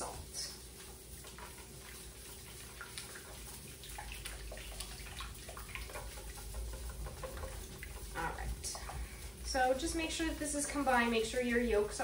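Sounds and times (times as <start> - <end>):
liquid sloshing: 0.0 - 12.0
whisk clinking in metal bowl: 5.4 - 9.8.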